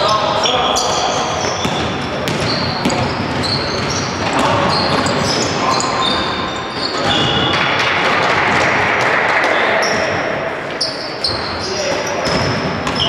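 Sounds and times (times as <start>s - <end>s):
shoes squeaking on floor: 0.0s - 7.7s, 9.8s - 13.0s
basketball bouncing on court: 0.8s - 9.0s, 11.2s - 13.0s.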